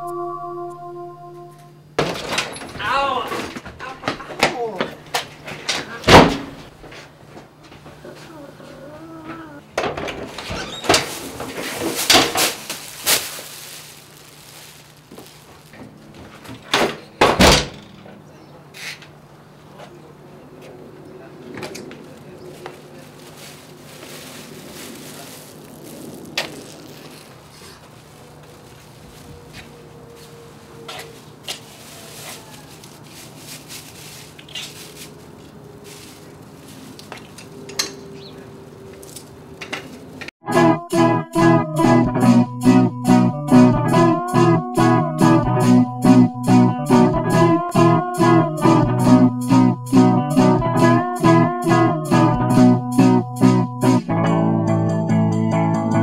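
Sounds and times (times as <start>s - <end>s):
door slamming: 6.0s - 6.7s, 16.5s - 18.1s
plastic bag rustling: 10.6s - 16.6s, 22.0s - 38.1s.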